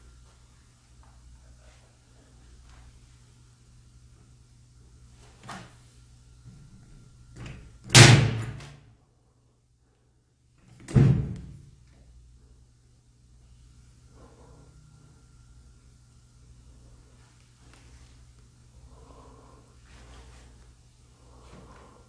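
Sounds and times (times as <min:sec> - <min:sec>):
door thudding against frame: 0:10.8 - 0:11.5.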